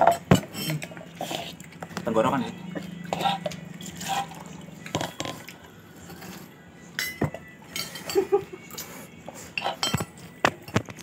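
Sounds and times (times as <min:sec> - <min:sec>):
spoons clinking on plates: 0:00.0 - 0:01.1, 0:02.9 - 0:11.0
plastic cups being handled: 0:00.0 - 0:06.5.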